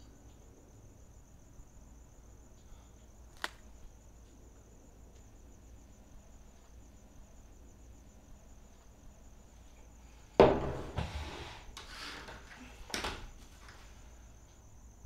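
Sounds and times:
crickets chirping: 0.0s - 15.0s
knock: 10.4s - 11.1s.

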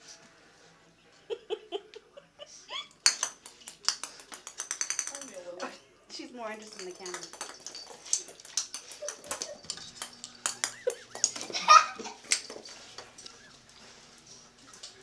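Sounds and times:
ornament clattering across tile floor: 3.0s - 5.8s, 6.4s - 15.0s.

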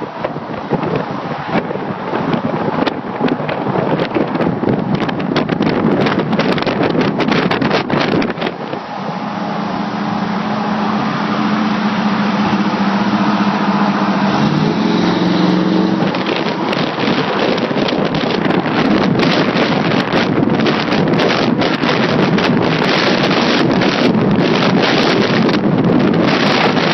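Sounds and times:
wind buffeting microphone: 0.0s - 26.9s
pickup truck exhaust note: 6.7s - 26.9s.

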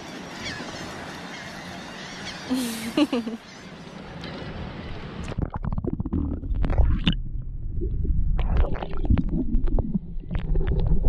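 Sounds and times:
muffled underwater rumble: 5.2s - 11.0s.

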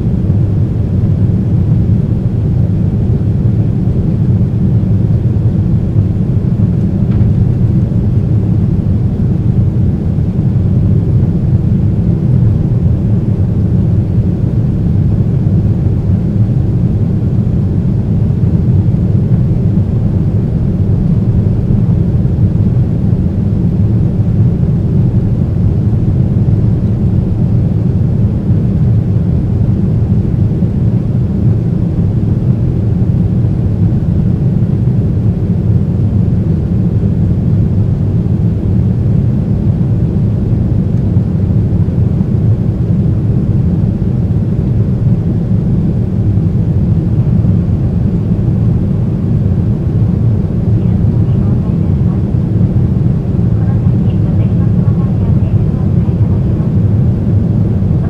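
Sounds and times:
jet engines deep rumble: 0.0s - 58.0s.

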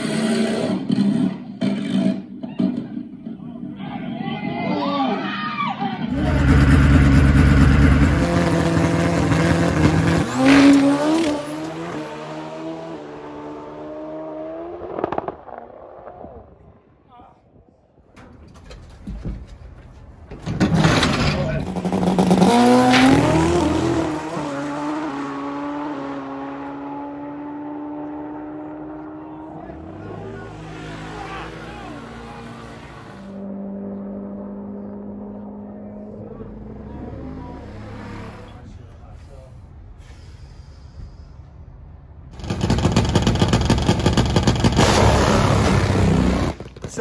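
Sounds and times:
motorcycle engine revving: 0.0s - 3.2s, 6.1s - 16.3s, 20.7s - 38.7s, 42.4s - 47.0s.

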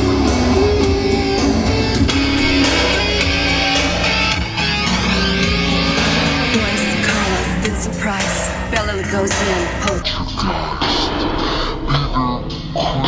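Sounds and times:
guitar music over loudspeaker: 0.0s - 10.0s.

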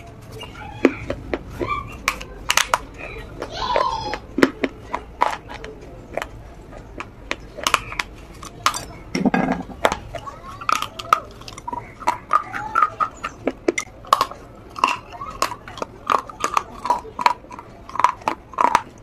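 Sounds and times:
biscuit crunching: 0.0s - 19.0s.

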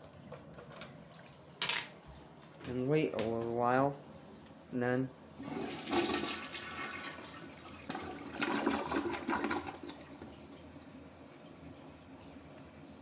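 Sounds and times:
toilet flushing: 5.4s - 13.0s.

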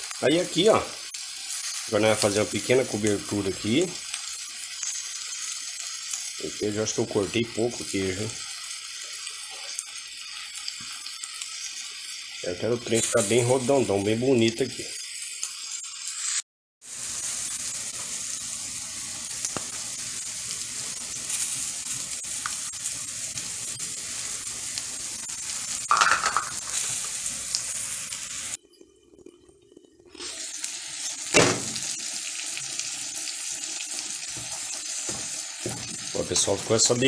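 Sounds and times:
omelette sizzling in a pan: 0.0s - 37.0s
sharp knock: 31.4s - 31.8s.

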